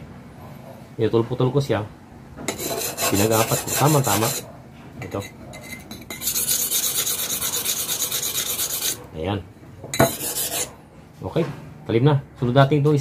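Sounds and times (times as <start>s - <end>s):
blade scraping on sharpening stone: 2.5s - 4.4s, 5.1s - 9.0s, 10.0s - 10.7s.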